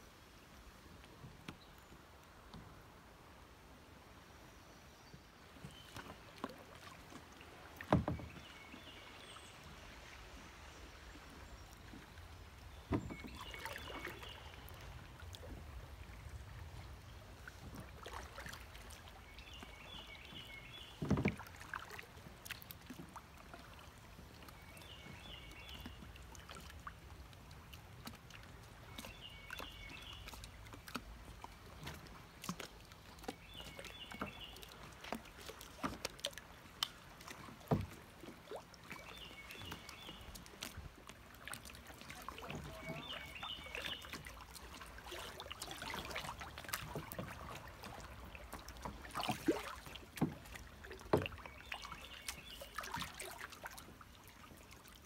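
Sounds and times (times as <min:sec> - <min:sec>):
water lapping around kayak: 0:00.0 - 0:55.0
bird song: 0:07.9 - 0:09.8, 0:11.3 - 0:14.8, 0:19.1 - 0:21.2, 0:24.4 - 0:26.7, 0:28.8 - 0:32.0, 0:32.6 - 0:34.9, 0:38.8 - 0:40.8, 0:41.6 - 0:53.6.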